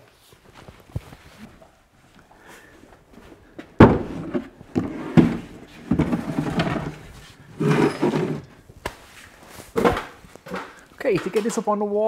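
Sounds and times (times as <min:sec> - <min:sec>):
wooden cabinet knocking: 0:03.8 - 0:06.9.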